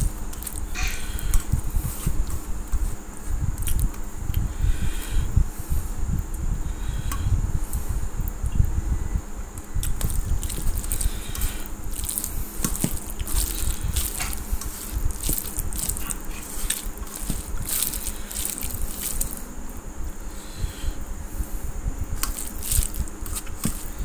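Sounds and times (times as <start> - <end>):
low rumble: 0.0 - 24.0
fingers squishing rice on steel plate: 9.7 - 19.5, 22.2 - 24.0.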